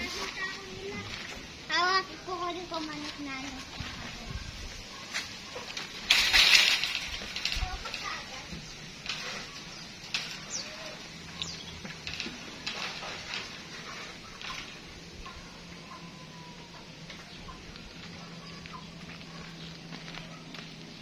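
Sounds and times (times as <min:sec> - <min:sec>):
high bird chirps: 0:09.5 - 0:11.8.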